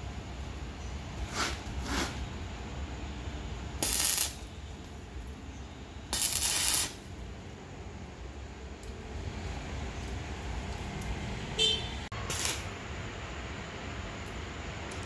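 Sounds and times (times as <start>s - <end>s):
arc welder bursts: 3.8s - 4.5s, 6.1s - 7.2s, 12.2s - 13.0s.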